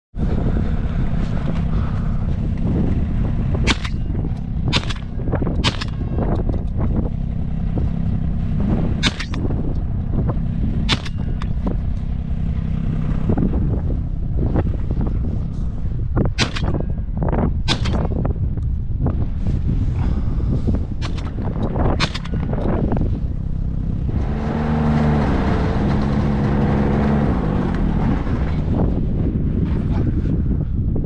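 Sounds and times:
steady low rumble: 0.1 - 31.0.

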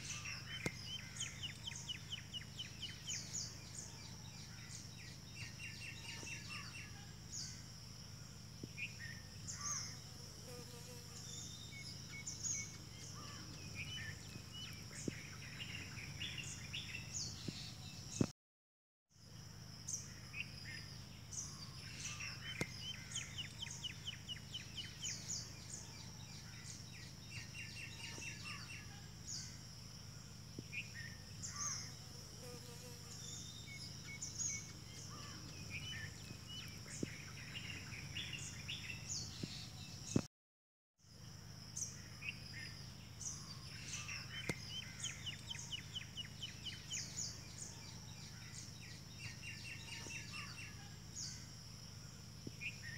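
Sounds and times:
small birds chirping: 0.0 - 7.7, 8.4 - 18.3, 19.9 - 29.6, 30.5 - 40.3, 41.8 - 51.8.

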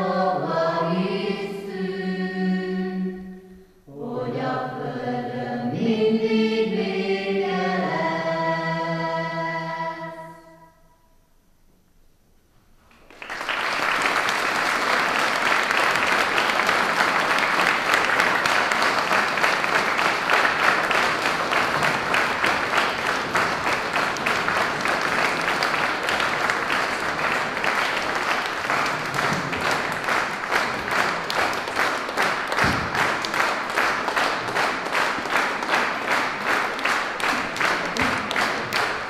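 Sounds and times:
audience applauding: 12.9 - 39.0
crowd clapping in unison: 12.9 - 39.0.

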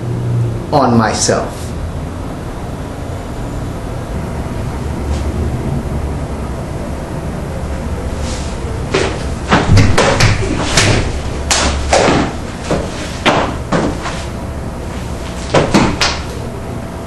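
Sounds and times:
body thumping on wooden floor: 8.9 - 14.3, 15.2 - 16.3.

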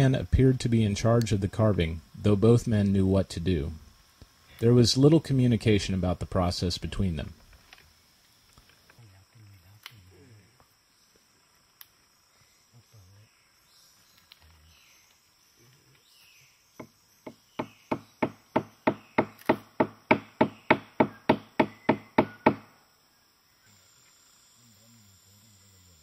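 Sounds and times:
insects humming: 0.0 - 26.0
chopping blows on wood: 16.8 - 22.7.

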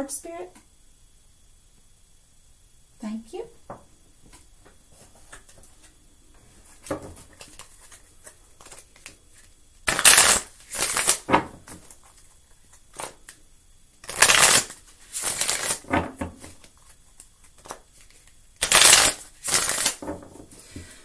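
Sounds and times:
cards being shuffled: 4.2 - 13.4, 14.0 - 20.9.

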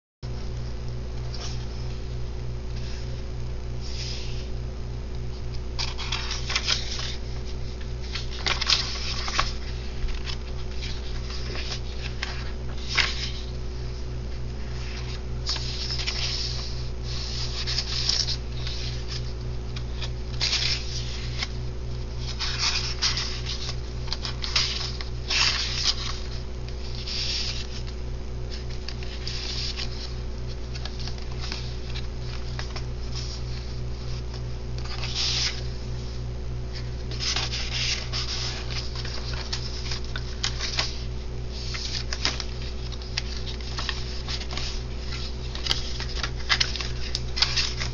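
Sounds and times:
low hum: 0.2 - 47.9
paper pages rustling: 5.8 - 47.9.

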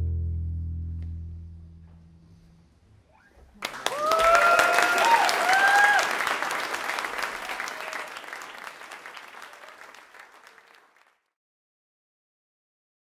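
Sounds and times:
audience applauding: 3.6 - 11.3.

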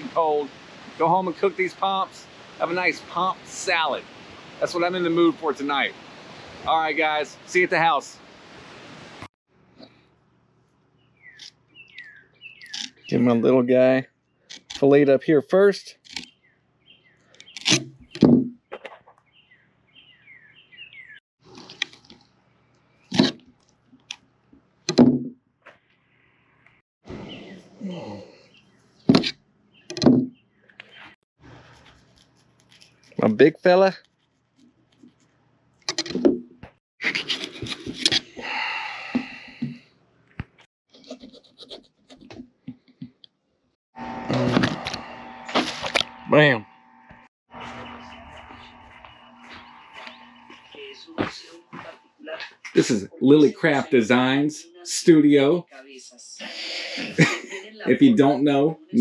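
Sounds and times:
bird chirping: 11.0 - 13.6, 16.2 - 21.2, 27.1 - 31.2, 47.6 - 51.6.

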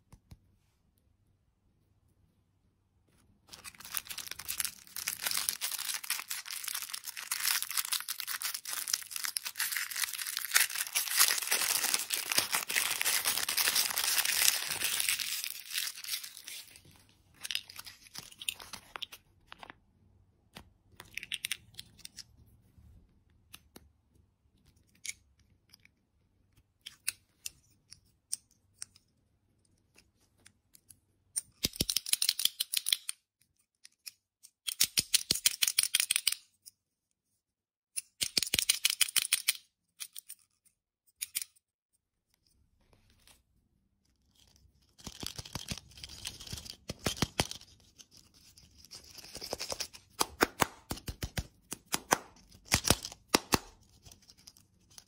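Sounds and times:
plastic wrapper crinkling: 3.5 - 19.7.

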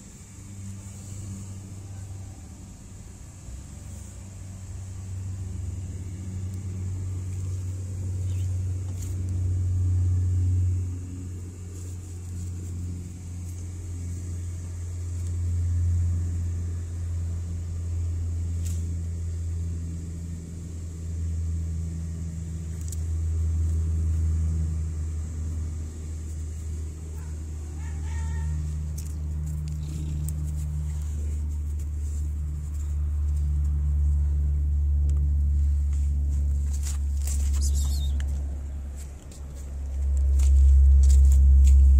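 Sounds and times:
cat purring: 26.9 - 32.2.

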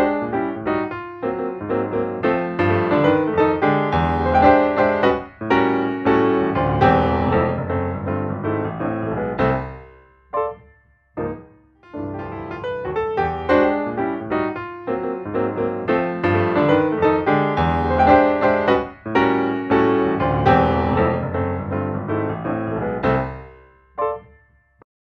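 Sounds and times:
piano music: 0.0 - 24.9.

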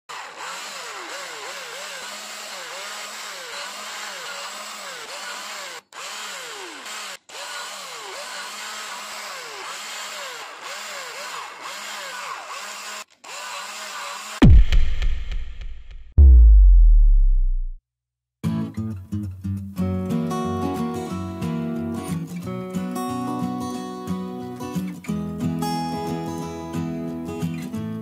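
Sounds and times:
electric drill boring plastic: 0.1 - 14.4.

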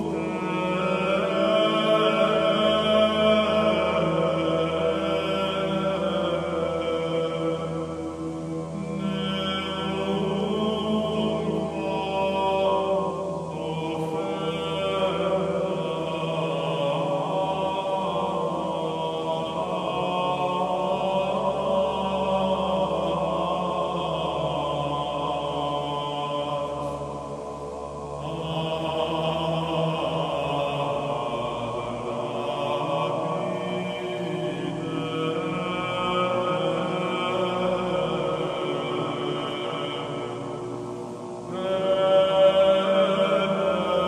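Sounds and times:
film music drone: 0.0 - 44.0.

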